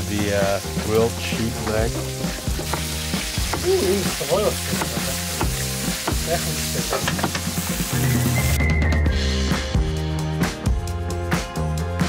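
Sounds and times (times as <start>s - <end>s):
potatoes sizzling in frying pan: 0.0s - 8.6s
wooden spatula scraping pan: 0.2s - 7.6s.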